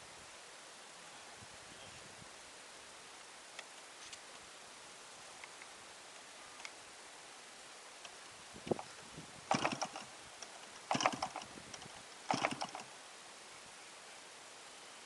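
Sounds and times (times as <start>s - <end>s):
model engine clicking: 9.5s - 12.9s.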